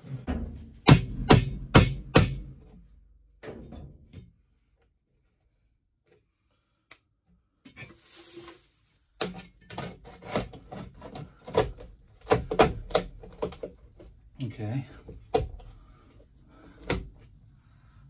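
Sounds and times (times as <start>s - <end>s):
sheet metal clattering knocks: 0.0s - 2.6s.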